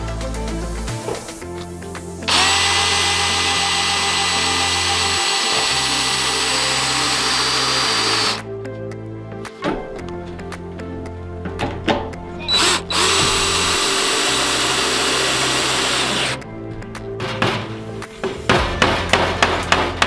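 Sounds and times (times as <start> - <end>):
power drill driving screw into metal: 2.3 - 8.4, 12.5 - 16.4.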